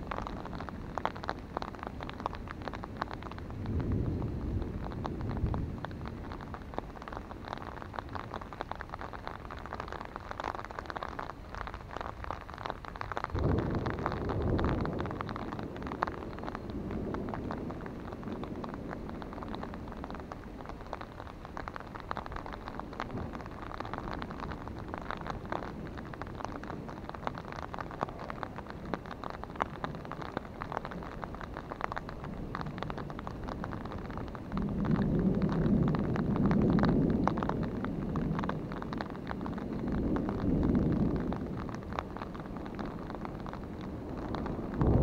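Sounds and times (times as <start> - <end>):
rain on an umbrella: 0.0 - 45.0
thunder rumble: 0.0 - 45.0.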